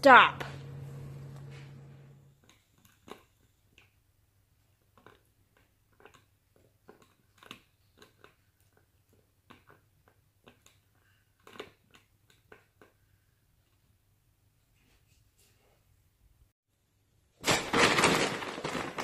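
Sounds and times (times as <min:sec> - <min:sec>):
cat chewing plastic nozzle: 0:02.4 - 0:13.8.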